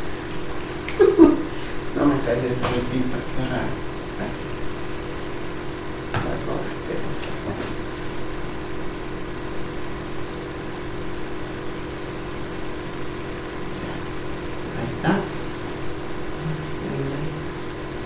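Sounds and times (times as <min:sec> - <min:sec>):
steady machine hum: 0:00.0 - 0:18.0.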